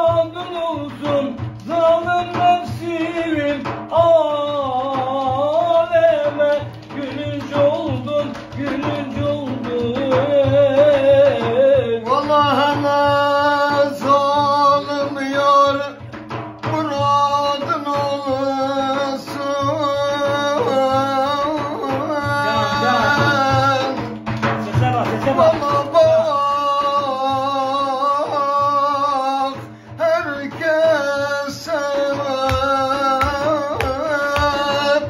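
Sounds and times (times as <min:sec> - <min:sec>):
frame drum beat: 0:00.0 - 0:35.0
man singing: 0:00.0 - 0:35.0.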